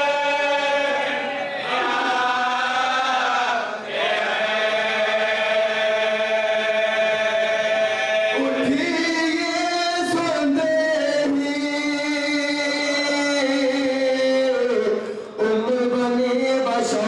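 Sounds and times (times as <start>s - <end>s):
man chanting unaccompanied: 4.6s - 17.0s.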